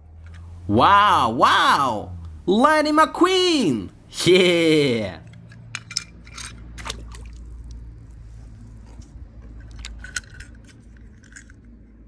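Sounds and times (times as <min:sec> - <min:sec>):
toy cars clicking and scraping: 0:00.0 - 0:00.6, 0:05.2 - 0:12.0
steady low hum: 0:00.0 - 0:12.0.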